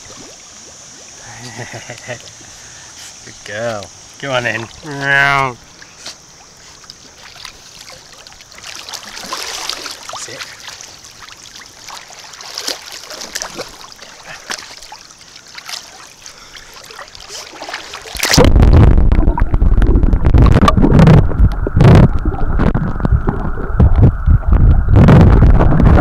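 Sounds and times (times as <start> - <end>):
water splashing and lapping: 0.0 - 19.6
underwater rumble and gurgle: 18.0 - 26.0.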